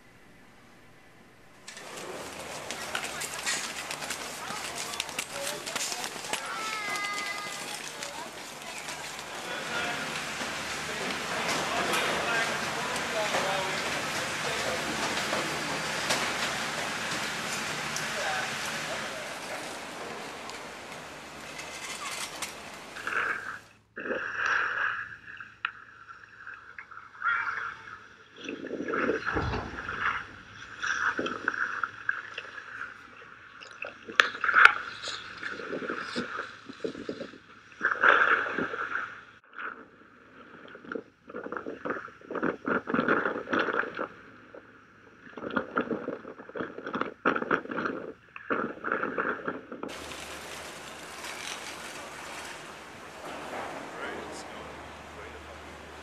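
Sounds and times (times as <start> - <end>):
skis scraping on snow: 1.7 - 23.6, 49.9 - 55.4.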